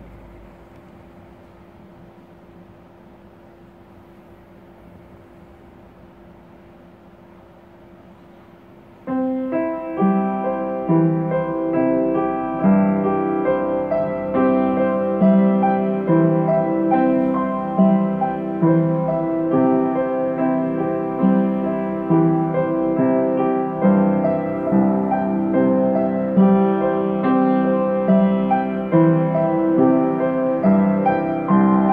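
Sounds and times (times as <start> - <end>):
slow piano music: 8.4 - 31.9.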